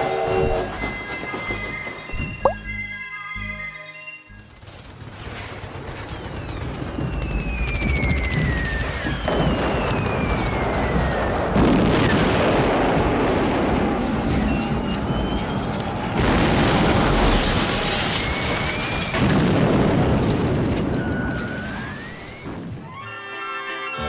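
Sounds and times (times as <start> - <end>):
rapid gunfire crackling: 4.5 - 21.3
falling bomb whistle: 7.0 - 11.3
explosion: 8.4 - 21.0.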